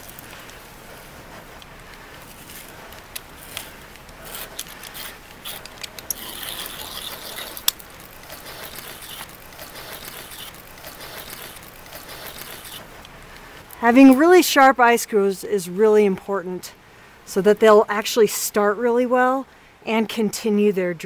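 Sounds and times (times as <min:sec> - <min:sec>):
sharp clicks: 0:02.9 - 0:13.5
ice screw grinding into ice: 0:04.2 - 0:12.8.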